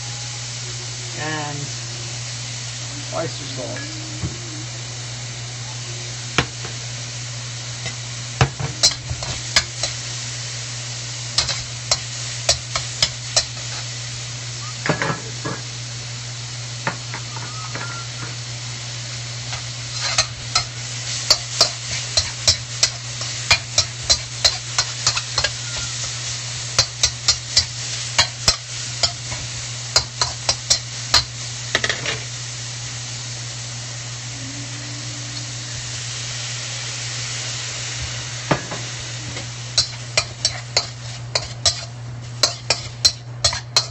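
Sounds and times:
chicken sizzling in a wok: 0.0 - 43.9.

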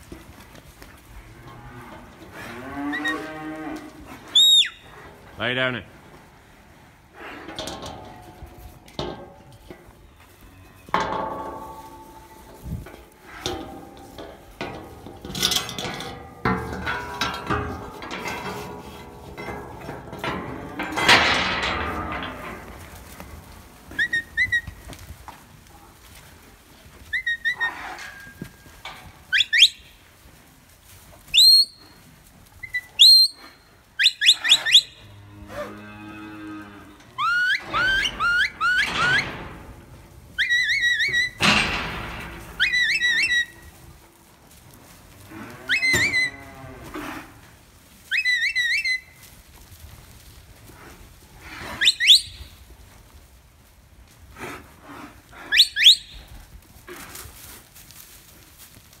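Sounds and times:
cattle mooing: 1.2 - 4.2, 34.4 - 39.3
shepherd's whistles: 4.4 - 4.8, 31.4 - 31.8, 32.6 - 33.4, 51.8 - 52.5, 55.5 - 56.2.

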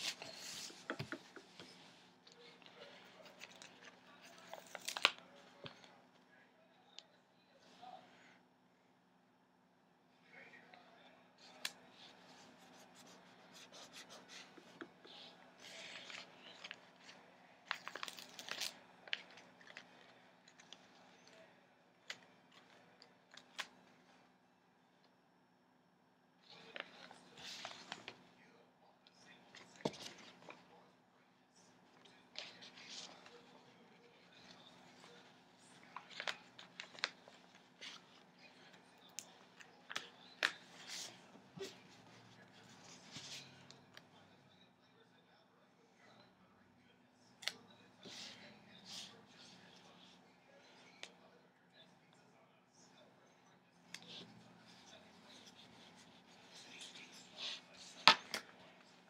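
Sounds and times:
paper crinkling crackles: 0.0 - 5.9, 11.4 - 24.2, 26.5 - 28.2, 31.9 - 44.1
paper rustling: 0.0 - 5.9, 11.5 - 21.5, 26.5 - 28.2, 29.5 - 30.7, 31.9 - 43.8, 53.9 - 58.9.

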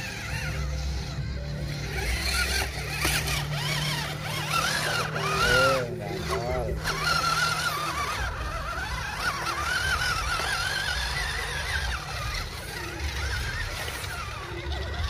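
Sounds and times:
electric motors whining: 0.0 - 15.0.

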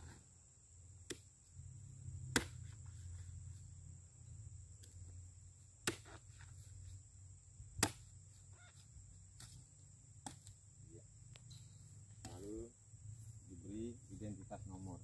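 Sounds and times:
blade chopping into stalk: 2.3 - 2.6.

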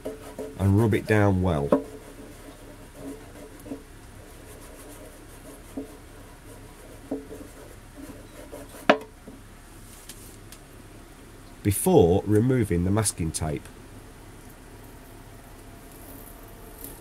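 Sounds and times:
card rubbing over tape: 1.9 - 8.9.

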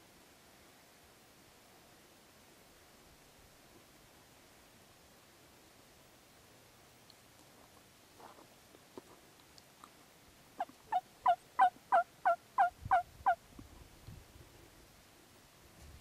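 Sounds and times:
turkey yelps: 10.6 - 13.4.

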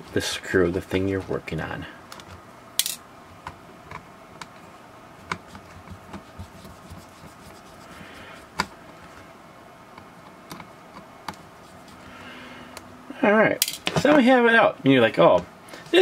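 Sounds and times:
screwdriver scratching plastic: 5.3 - 8.0.

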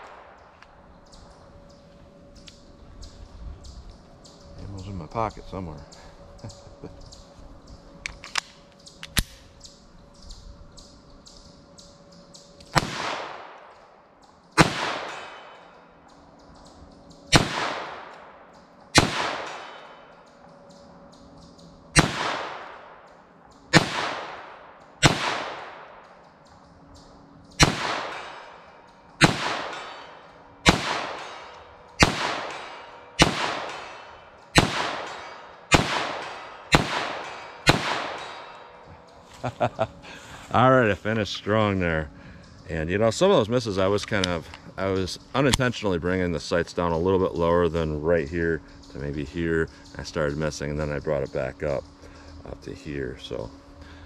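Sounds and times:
gun handling clicks: 8.0 - 9.5
pistol shots with echo: 12.7 - 13.9, 14.6 - 15.8, 17.3 - 20.2, 21.9 - 23.0, 23.7 - 26.1, 27.5 - 38.9.

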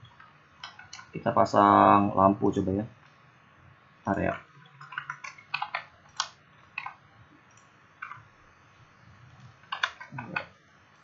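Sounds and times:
keyboard and mouse clicking: 0.0 - 1.2, 4.7 - 8.3, 9.4 - 10.6.

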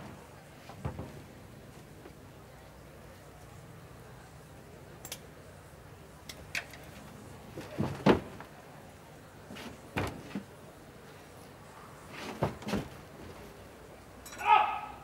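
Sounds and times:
scattered knocks and thuds: 0.7 - 1.3, 7.6 - 8.4.

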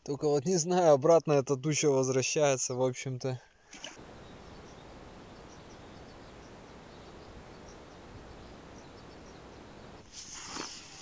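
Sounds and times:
faint bird chirps: 4.0 - 10.1.

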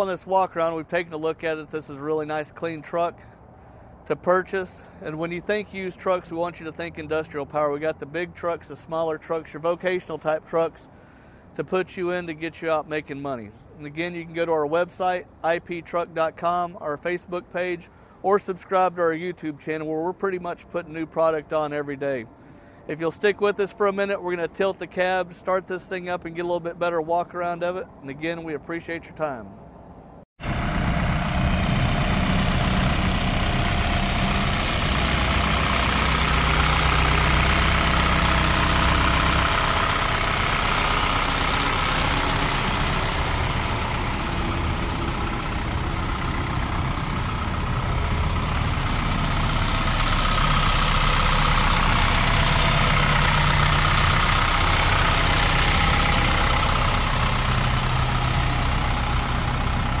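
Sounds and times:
truck engine idling: 0.0 - 13.0, 30.4 - 60.0.

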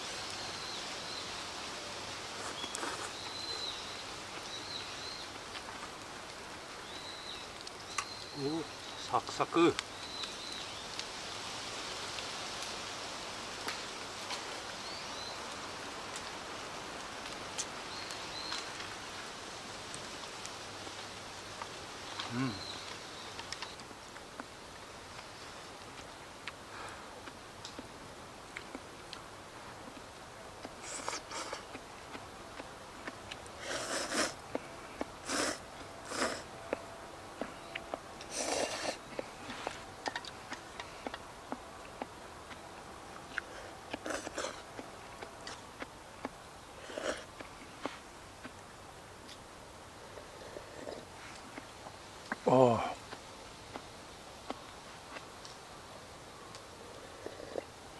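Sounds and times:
steady outdoor hiss: 0.0 - 57.9
noodles being slurped: 2.4 - 3.2, 33.6 - 34.4, 35.2 - 36.5.

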